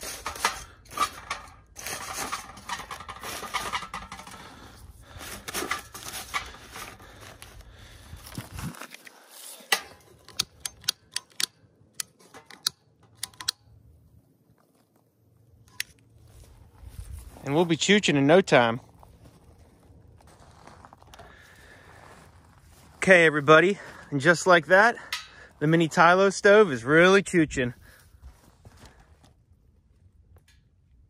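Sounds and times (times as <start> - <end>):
kindling clattering into metal stove: 0.0 - 7.3, 9.6 - 11.3, 25.0 - 25.5
sharp clicks: 10.3 - 13.7.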